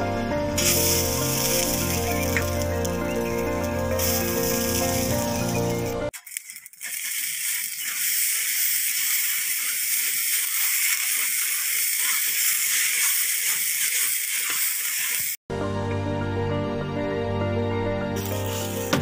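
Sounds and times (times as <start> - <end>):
bamboo sticks scraping rice in pan: 0.6 - 15.4.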